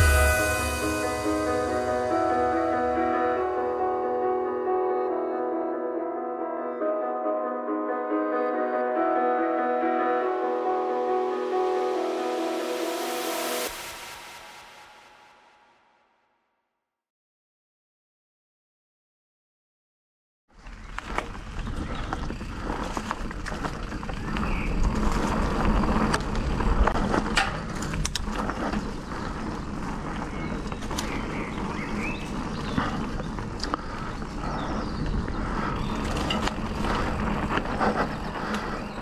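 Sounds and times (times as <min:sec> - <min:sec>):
low rumble: 0:00.0 - 0:04.0
bike tyres crunching over dirt: 0:20.5 - 0:39.0
bike clicking and rattling: 0:20.6 - 0:39.0.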